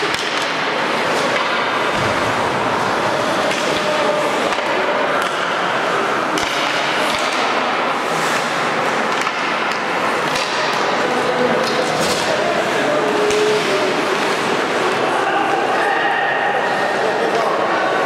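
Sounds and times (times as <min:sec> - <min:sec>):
hockey sticks and puck knocking: 0:00.0 - 0:02.3, 0:03.2 - 0:05.6, 0:06.3 - 0:07.8, 0:08.4 - 0:12.4.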